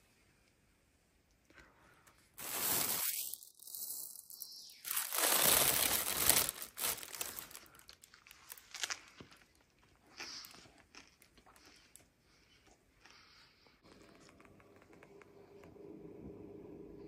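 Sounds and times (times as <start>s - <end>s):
plastic bag crinkling: 2.4s - 9.7s.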